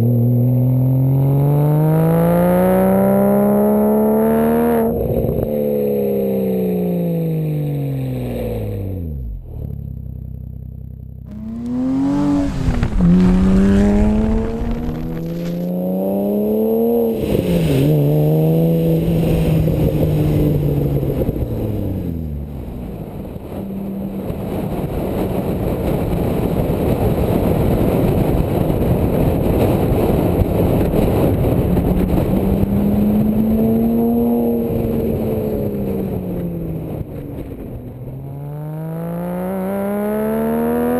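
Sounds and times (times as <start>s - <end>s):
sports car engine revving: 0.0s - 26.4s, 29.4s - 40.9s
car passing by: 11.3s - 21.5s.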